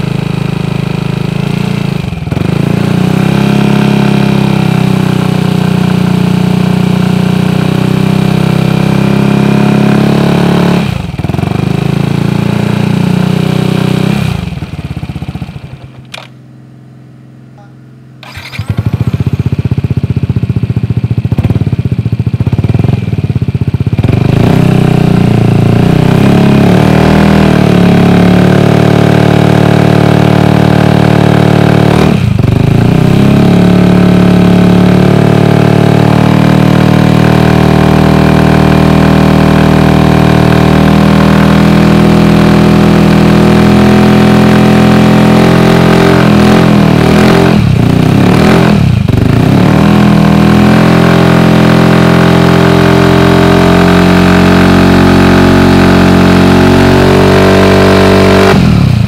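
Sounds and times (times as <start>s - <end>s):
scooter engine revving: 0.0s - 16.6s, 17.5s - 59.0s.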